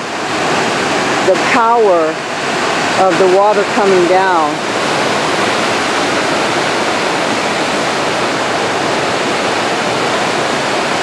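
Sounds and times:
waterfall rushing into pool: 0.0 - 11.0.

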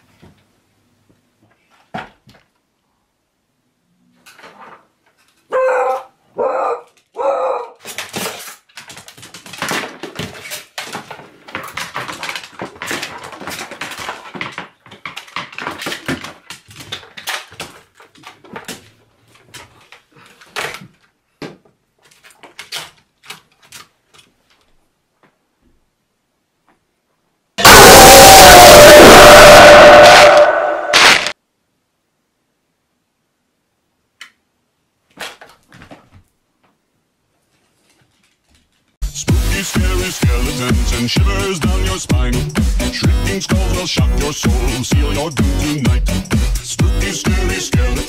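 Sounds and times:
dog barking: 5.5 - 7.8
plastic bones clattering on floor: 7.8 - 24.6.

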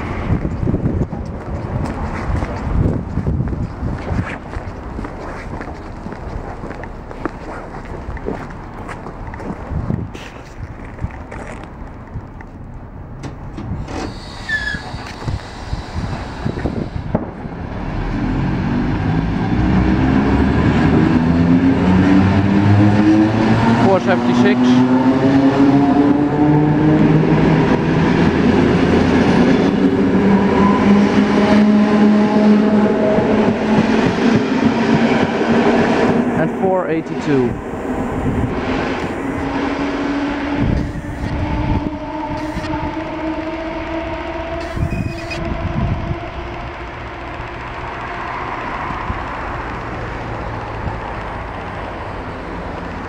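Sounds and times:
train running noise: 0.0 - 53.0
electric train motors whining: 25.6 - 53.0.

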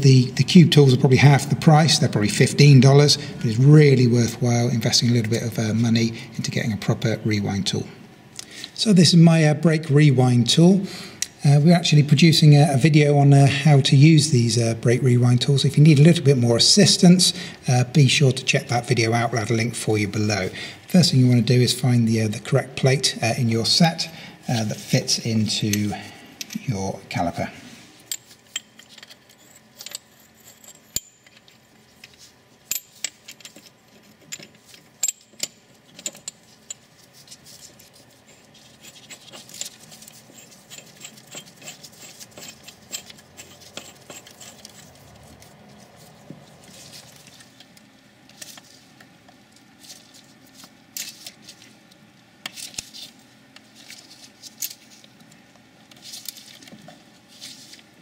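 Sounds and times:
light metallic clicks and scrapes: 28.0 - 51.7.

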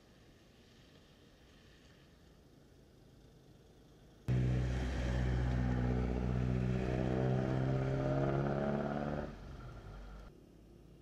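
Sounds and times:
vehicle engine running: 4.3 - 10.3.

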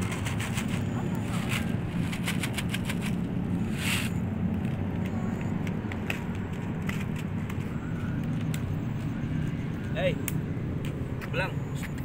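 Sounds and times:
rustle: 0.0 - 4.2
city traffic rumble: 0.0 - 12.0.

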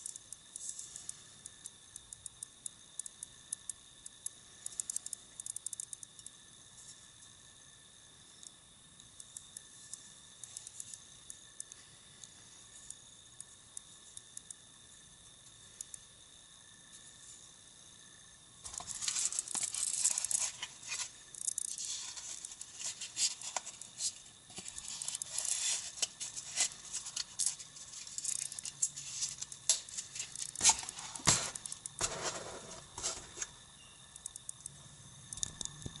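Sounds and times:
knife sheath rustling and scraping: 18.7 - 33.5.

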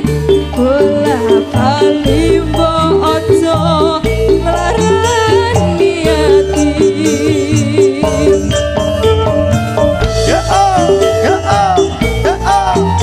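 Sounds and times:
woman singing with vibrato: 0.0 - 8.6
band playing live: 0.0 - 13.0
bass: 0.0 - 13.0
gamelan metallophones: 0.0 - 13.0
hand drums: 0.0 - 13.0.

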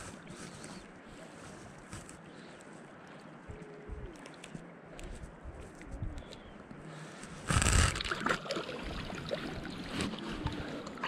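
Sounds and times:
clothing rubbing on microphone: 0.0 - 2.8, 3.5 - 6.4, 7.3 - 8.0.

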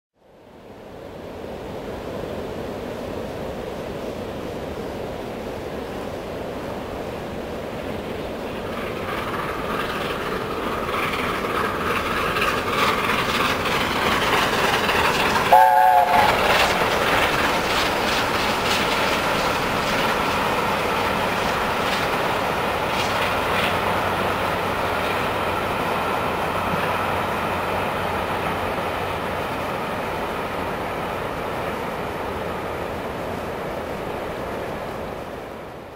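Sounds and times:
rushing water: 0.5 - 35.9
train wheels rolling: 7.6 - 35.4
steam locomotive exhaust: 8.2 - 33.0.

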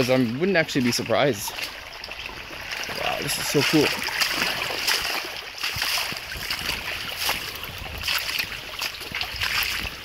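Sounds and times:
stream running over rocks: 0.0 - 10.0
footsteps on rocky path: 2.2 - 10.0.

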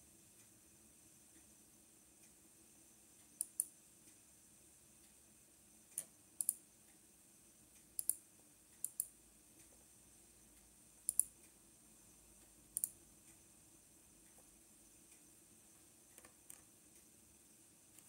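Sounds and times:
faint steady hum: 0.0 - 18.0
sharp clicks in pairs: 3.3 - 3.7, 5.9 - 6.6, 7.9 - 8.2, 8.8 - 9.1, 11.1 - 11.6, 12.8 - 13.0.

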